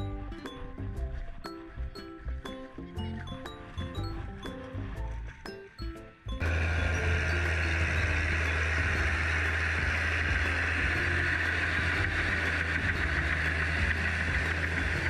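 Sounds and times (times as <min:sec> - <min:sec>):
tractor diesel engine drone: 0:03.2 - 0:15.0.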